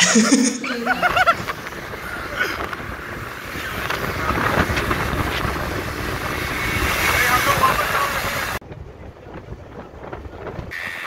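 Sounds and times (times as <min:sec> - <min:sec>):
wind rush over microphone: 0:00.8 - 0:11.0
motorcycle running: 0:00.9 - 0:11.0.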